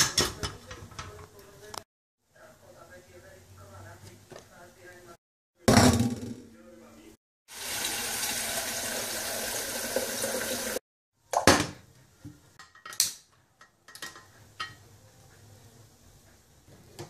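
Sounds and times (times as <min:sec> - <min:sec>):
tap water running into pot: 0:07.5 - 0:10.8.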